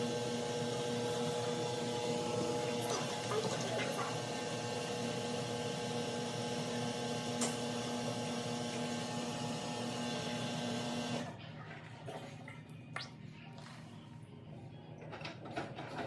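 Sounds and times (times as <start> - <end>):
washing machine drum spinning: 0.0 - 12.2.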